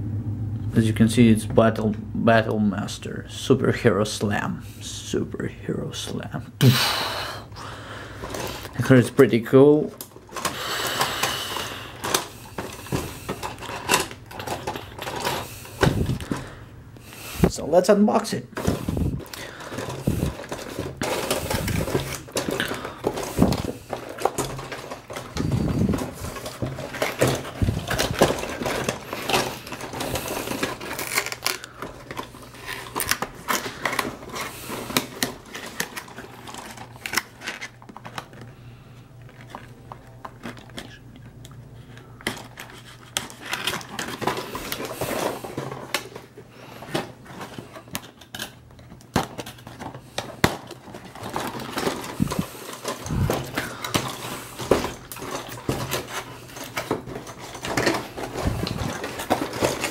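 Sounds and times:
hard plastic toys clicking: 9.9 - 16.5, 18.6 - 38.5, 39.3 - 59.9.

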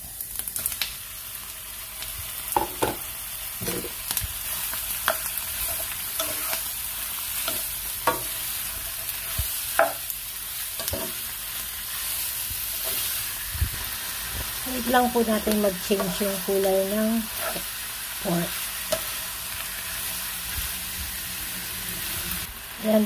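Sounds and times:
meat sizzling in oil: 0.0 - 23.0
spatula scraping and knocking pan: 3.6 - 4.0, 7.4 - 10.1, 10.8 - 11.2.

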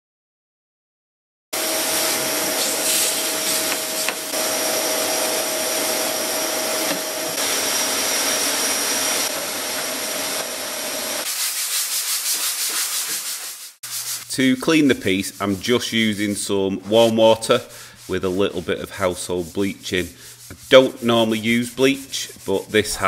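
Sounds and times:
shop vacuum whining: 1.6 - 11.2.

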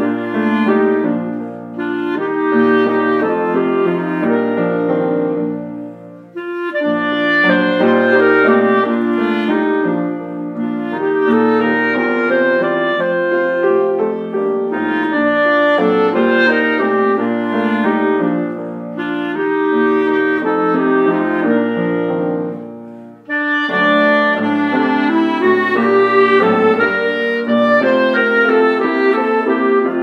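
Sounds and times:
clarinet melody: 0.0 - 30.0
piano accompaniment: 0.0 - 30.0
breaths: 22.8 - 23.3.

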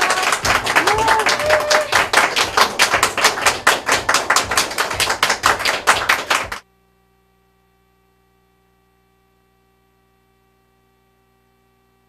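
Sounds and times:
group clapping quickly: 0.0 - 6.6.

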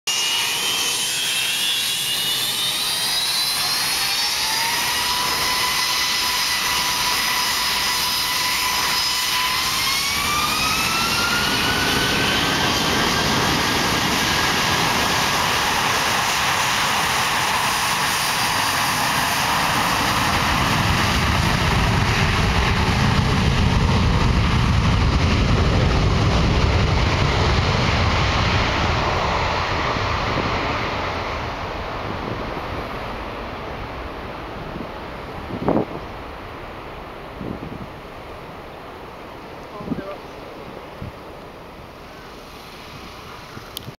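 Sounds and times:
jet engines spooling up: 0.1 - 38.0, 39.5 - 43.9
deep rumble: 20.4 - 36.6.

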